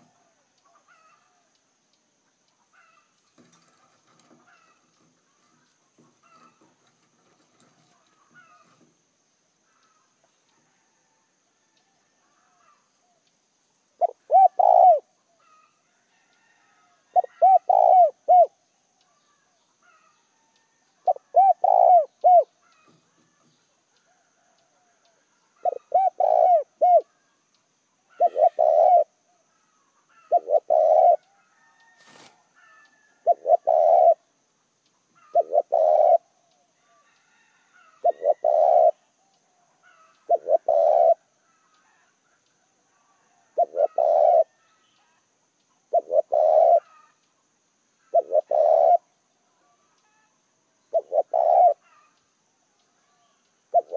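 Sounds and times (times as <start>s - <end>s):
dove cooing: 2.7s - 8.9s, 14.0s - 15.8s, 17.1s - 18.6s, 21.0s - 23.1s, 25.6s - 27.2s, 28.1s - 31.3s, 32.1s - 34.3s, 35.2s - 39.1s, 39.8s - 42.2s, 42.9s - 44.7s, 45.9s - 47.2s, 48.0s - 50.3s, 50.9s - 52.1s, 53.1s - 53.9s.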